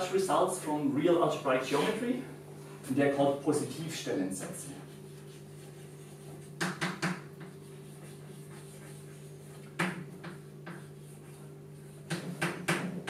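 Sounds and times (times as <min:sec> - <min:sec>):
low room hum: 0:00.0 - 0:13.0
chalk tapping and scratching: 0:04.4 - 0:13.0.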